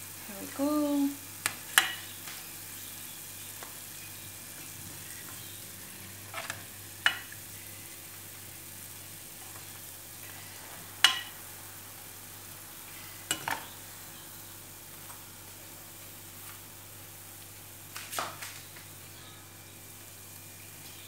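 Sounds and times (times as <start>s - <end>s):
hot oil sizzling: 0.0s - 21.0s
metal spoon clinking on pan: 11.0s - 11.3s.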